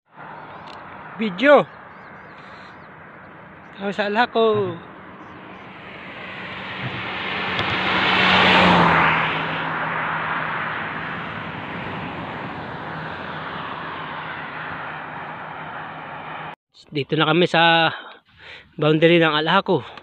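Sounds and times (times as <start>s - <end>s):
vehicle passing on highway: 0.1s - 16.6s
road hiss: 2.3s - 2.8s.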